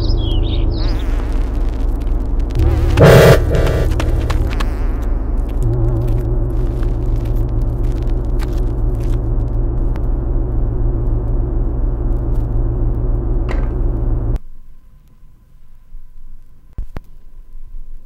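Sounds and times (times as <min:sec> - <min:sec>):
loud low hum: 0:00.0 - 0:14.4.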